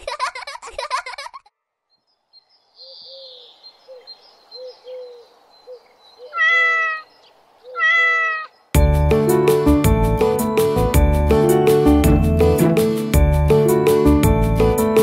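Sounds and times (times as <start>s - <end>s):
cat meowing: 6.3s - 7.1s, 7.7s - 8.5s
children's song music: 8.8s - 15.0s.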